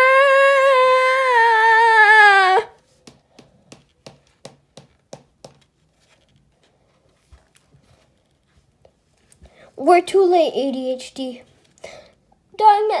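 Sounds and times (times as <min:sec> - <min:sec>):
fingertip tapping on book pages: 0:02.9 - 0:05.8.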